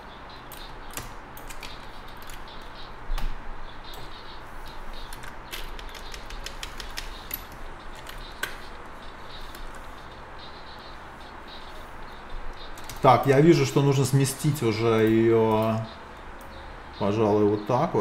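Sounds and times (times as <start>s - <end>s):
steady low hum: 0.0s - 18.0s
mouse and keyboard clicks: 5.0s - 8.8s.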